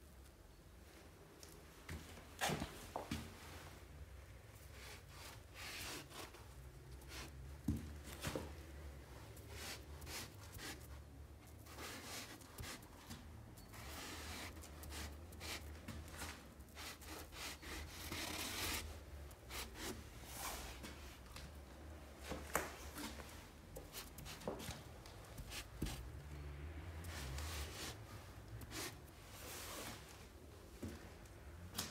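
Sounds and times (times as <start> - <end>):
marker rubbing across wallpaper: 16.8 - 20.0.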